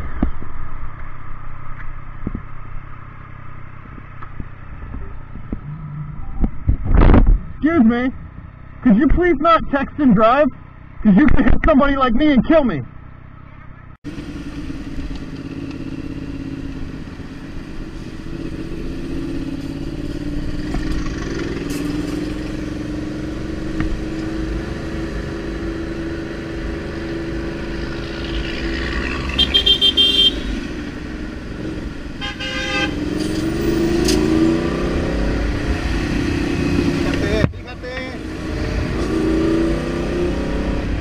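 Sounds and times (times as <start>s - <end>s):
wind rumble: 0.0s - 8.7s, 33.0s - 41.0s
motorcycle engine revving: 14.1s - 41.0s
horn short beeps: 29.4s - 30.5s.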